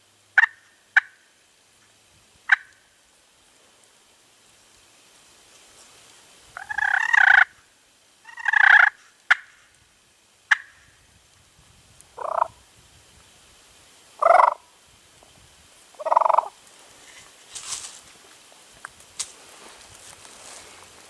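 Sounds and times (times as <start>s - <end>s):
turkey gobbling: 0.4s - 1.2s, 2.5s - 2.8s, 6.6s - 7.6s, 8.3s - 9.6s, 10.5s - 10.8s, 12.2s - 12.6s, 14.2s - 14.6s, 16.0s - 16.6s.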